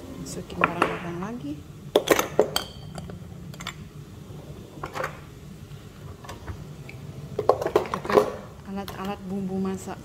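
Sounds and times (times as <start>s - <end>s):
steady low hum: 0.0s - 10.0s
glass jars knocking and clinking: 2.0s - 3.8s.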